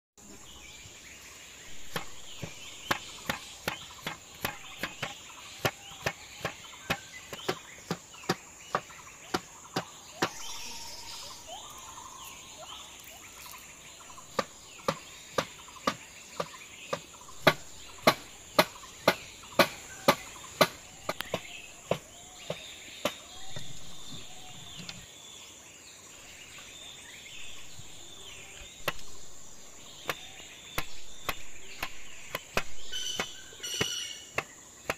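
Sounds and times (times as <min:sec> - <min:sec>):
bird calls: 0:00.2 - 0:34.9
cleaver chopping on wooden board: 0:01.7 - 0:10.5, 0:14.3 - 0:23.7, 0:28.6 - 0:29.3, 0:29.9 - 0:34.9.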